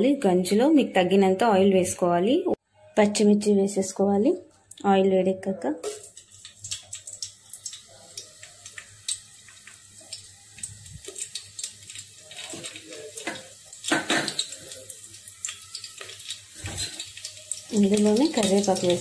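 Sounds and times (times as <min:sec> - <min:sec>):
chillies sizzling in hot oil: 0:05.8 - 0:19.0.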